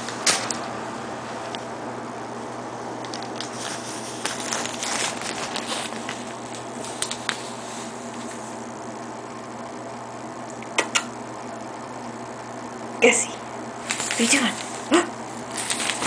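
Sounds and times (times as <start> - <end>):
steady low hum: 0.0 - 16.0
shower curtains rustling: 3.5 - 8.5, 13.8 - 14.9, 15.5 - 16.0.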